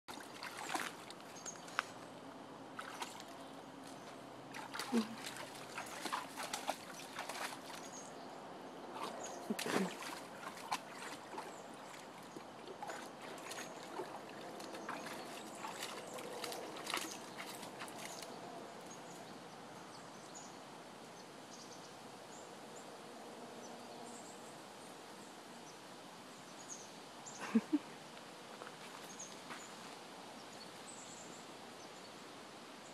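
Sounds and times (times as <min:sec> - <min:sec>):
dog splashing in stream water: 0:00.1 - 0:01.7, 0:02.8 - 0:08.1, 0:08.9 - 0:18.6
steady outdoor hiss: 0:00.1 - 0:32.9.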